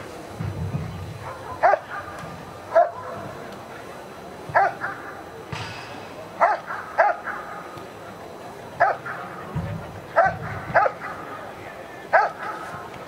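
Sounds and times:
dog barking: 1.2 - 3.2, 4.6 - 5.1, 6.4 - 7.7, 8.8 - 9.3, 10.2 - 11.5, 12.1 - 12.7.

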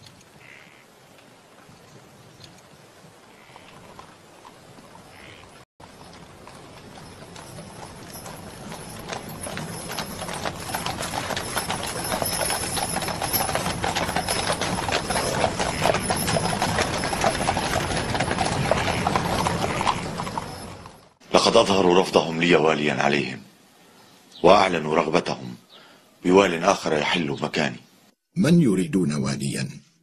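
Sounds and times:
many horses' hooves clattering: 1.2 - 21.2.

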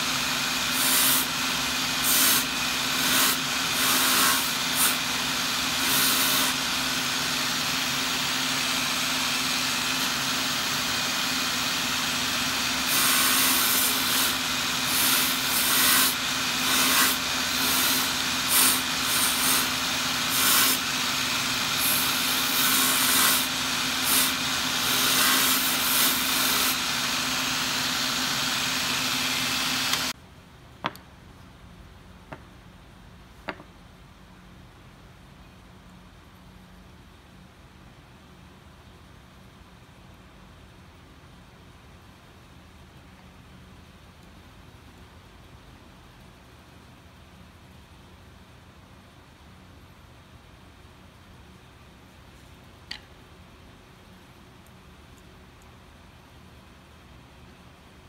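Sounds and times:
sanding disc motor hum: 0.0 - 30.1
wood sanding bursts: 0.0 - 30.1.

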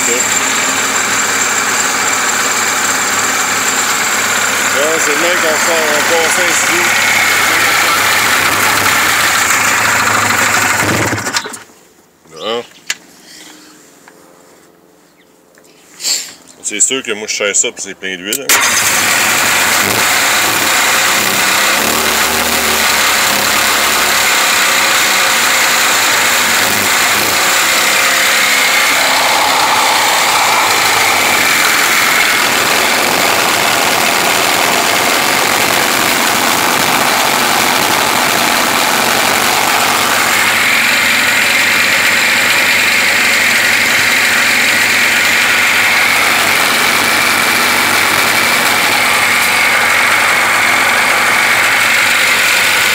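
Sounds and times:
two-stroke engine running: 0.0 - 11.6, 18.5 - 52.9.

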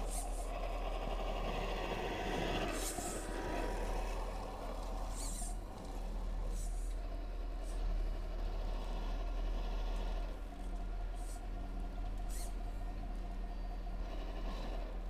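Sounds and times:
simulated truck engine drone: 0.0 - 15.0
toy truck pushing through snow: 0.0 - 15.0.

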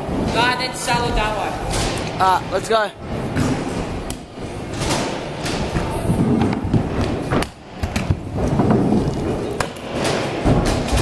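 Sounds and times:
scooter wheels rolling: 3.0 - 11.0.

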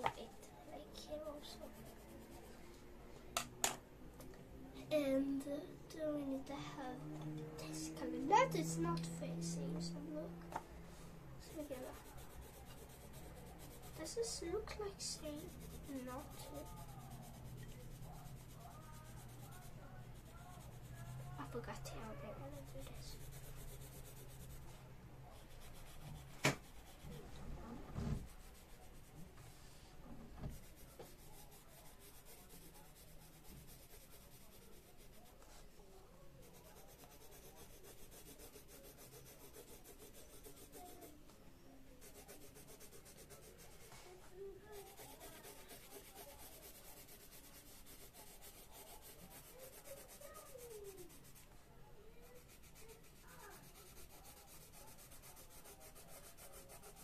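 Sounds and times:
pencil scratching on paper: 0.0 - 2.5, 11.4 - 29.3, 30.4 - 35.6, 36.4 - 41.2, 42.0 - 57.0.

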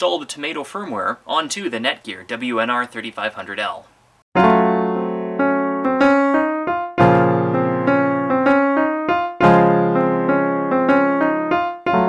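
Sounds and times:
piano chords: 4.4 - 12.0.

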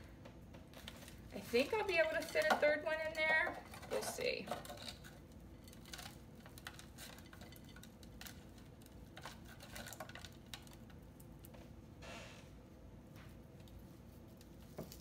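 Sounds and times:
hands working potting soil: 0.6 - 11.5.

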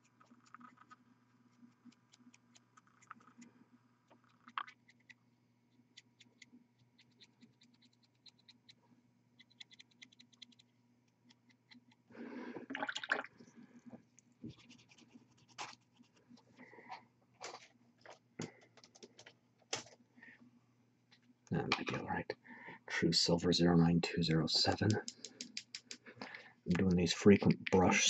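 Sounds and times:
paintbrush bristles scratching plastic: 14.5 - 16.4.

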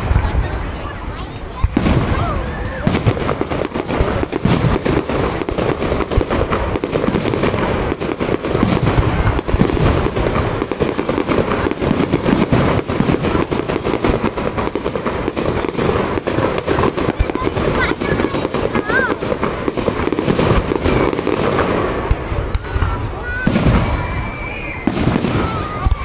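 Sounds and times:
fireworks bursting and crackling: 0.0 - 26.0.

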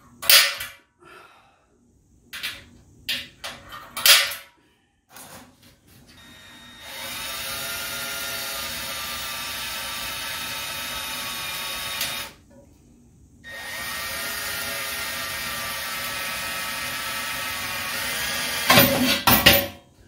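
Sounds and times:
power drill drilling through metal: 6.2 - 12.4, 13.5 - 18.9.

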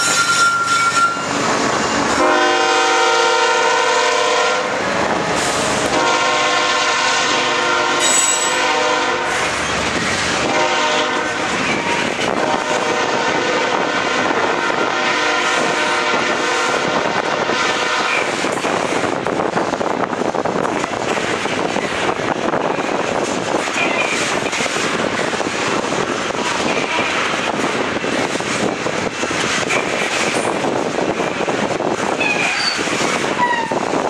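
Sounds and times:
train horn blasts: 2.1 - 4.8, 5.8 - 9.6, 10.4 - 18.4
train wheels clicking over rail joints: 18.1 - 34.0.

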